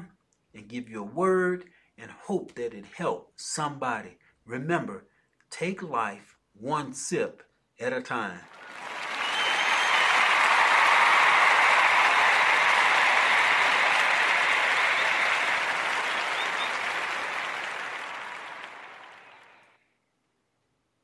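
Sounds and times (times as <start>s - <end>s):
crowd clapping: 8.5s - 19.8s.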